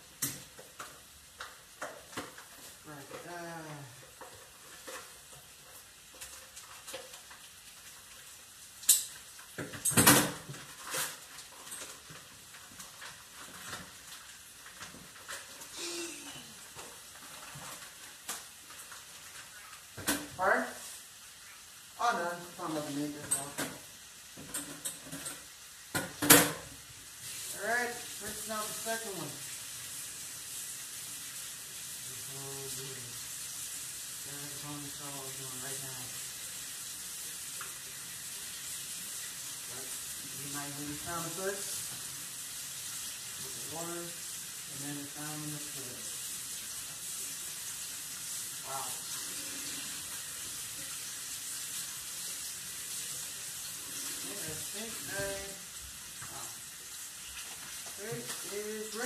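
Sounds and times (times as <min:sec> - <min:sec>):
beef sizzling in oil: 0:00.0 - 0:59.0
faint voice: 0:15.7 - 0:16.6.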